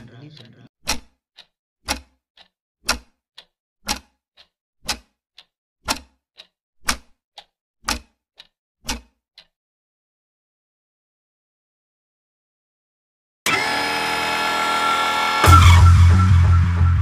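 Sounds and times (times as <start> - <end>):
clock ticking: 0.0 - 9.6.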